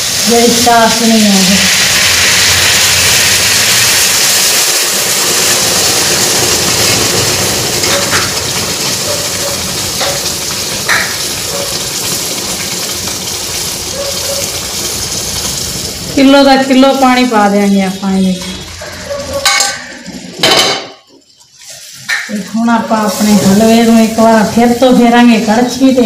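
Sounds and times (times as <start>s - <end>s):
hot syrup pouring with hiss: 0.0s - 16.2s.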